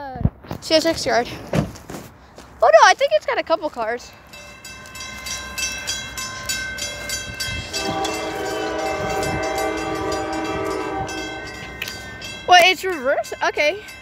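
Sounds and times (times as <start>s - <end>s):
crossing bell dinging: 3.9s - 14.0s
low train rumble: 4.0s - 14.0s
train horn: 7.6s - 12.0s.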